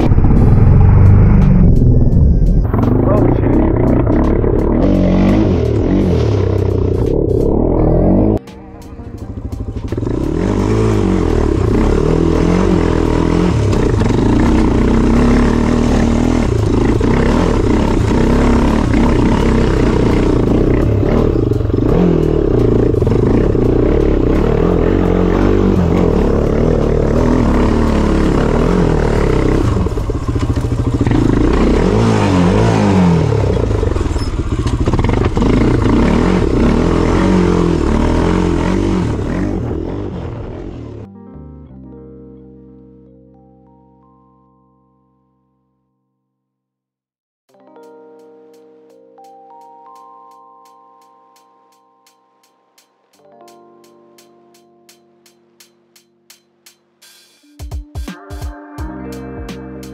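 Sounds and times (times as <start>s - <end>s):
quad engine revving: 0.0s - 8.4s, 9.4s - 41.1s.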